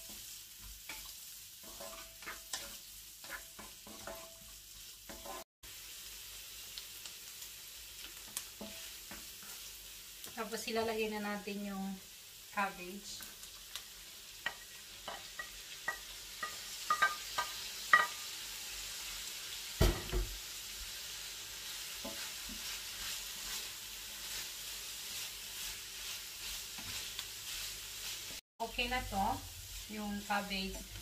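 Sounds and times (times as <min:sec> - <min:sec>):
cabbage sizzling in frying pan: 0:00.0 - 0:31.0
thump: 0:19.8 - 0:20.3
wooden spatula taps and scrapes: 0:22.0 - 0:22.7.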